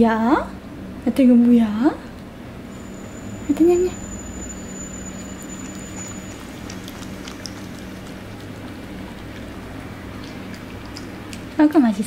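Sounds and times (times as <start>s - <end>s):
low hum and hiss: 0.0s - 12.0s
dog licking spoon: 3.5s - 11.6s.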